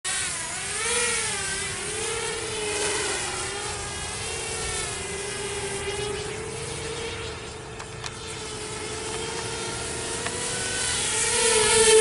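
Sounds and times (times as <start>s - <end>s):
quadcopter motors whining: 0.1s - 12.0s.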